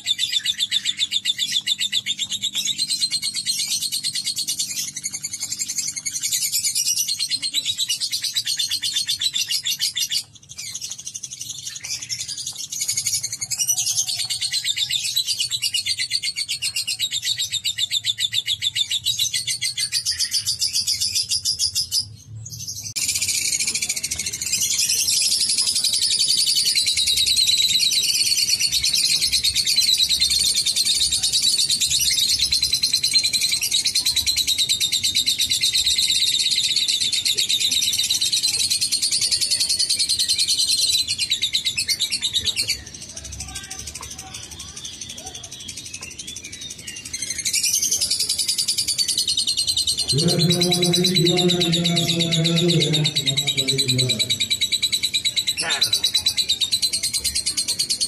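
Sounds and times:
lovebird chattering trill: 47.1s - 58.0s.

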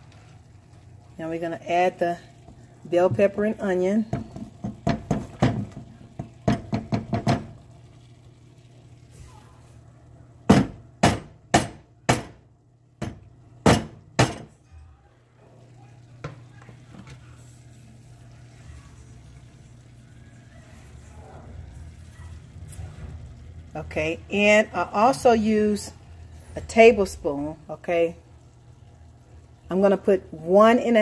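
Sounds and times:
cutting board knocking on pot rim: 4.1s - 7.5s.

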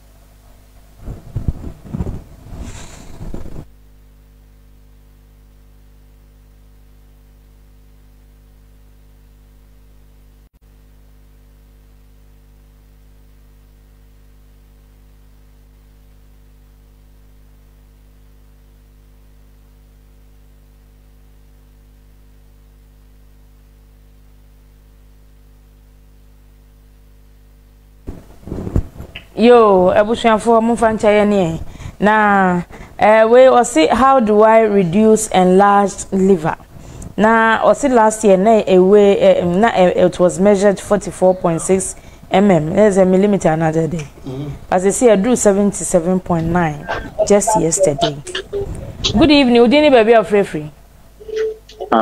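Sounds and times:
electrical mains hum: 0.0s - 52.0s.

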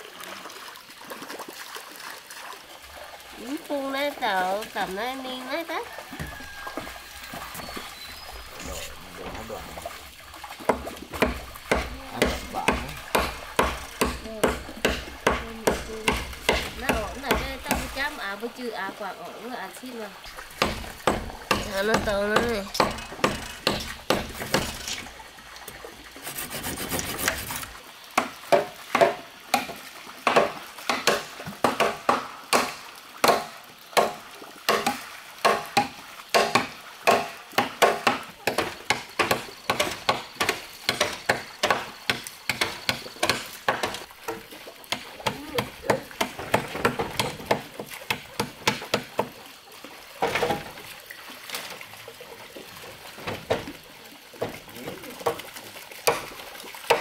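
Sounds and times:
sharp knocks on wood: 10.7s - 18.2s, 20.3s - 25.1s, 26.7s - 49.4s.

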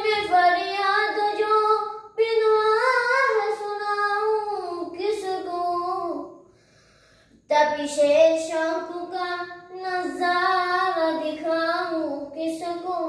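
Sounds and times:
boy singing unaccompanied: 0.0s - 6.4s, 7.5s - 13.0s.

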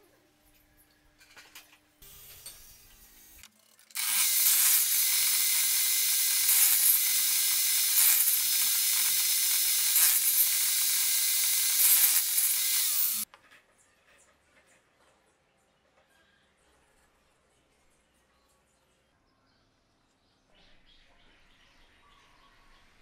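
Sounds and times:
saw motor hum: 4.0s - 13.2s
table saw cutting wood: 4.0s - 13.2s.

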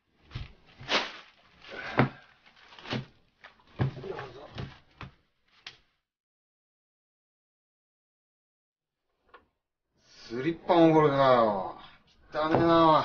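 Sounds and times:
rustling: 0.2s - 1.8s
knocks and thumps of clutter: 3.7s - 5.2s.

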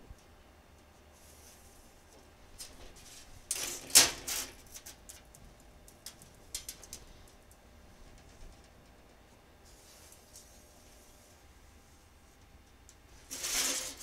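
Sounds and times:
steel rule clattering on metal: 3.5s - 4.6s.

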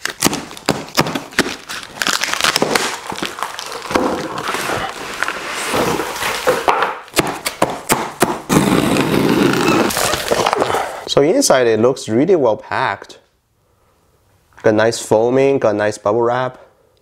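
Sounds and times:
cardboard lid scraping and rustling: 3.6s - 6.7s.

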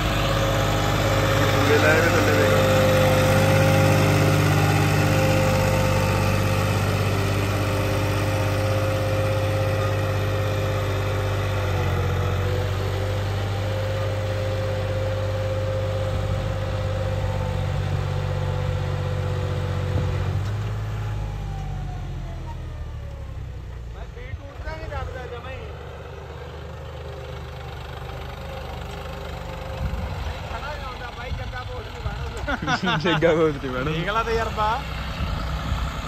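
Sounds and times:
tractor diesel engine running: 0.0s - 36.0s.

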